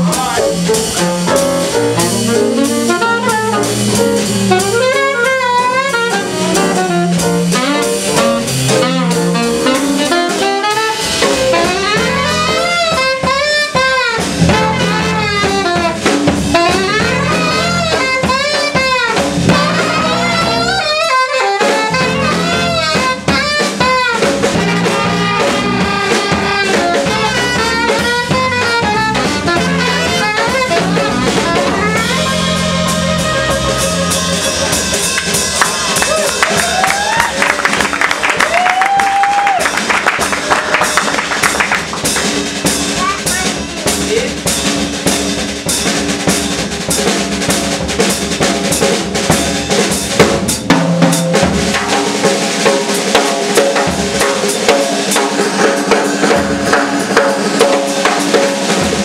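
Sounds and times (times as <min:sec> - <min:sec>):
saxophone melody: 0:00.0 - 0:41.0, 0:50.6 - 0:59.0
drum kit: 0:00.0 - 0:59.0.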